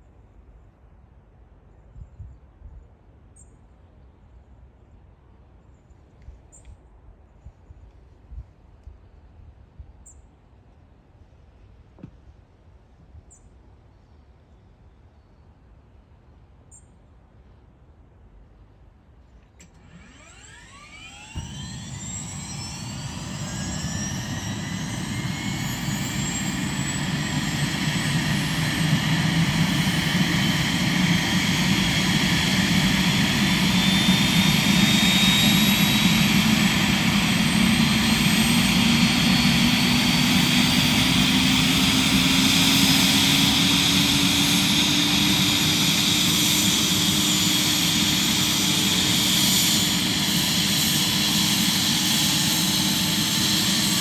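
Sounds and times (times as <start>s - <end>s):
helicopter turbine whine: 19.6s - 54.0s
rotor low hum rising: 19.7s - 54.0s.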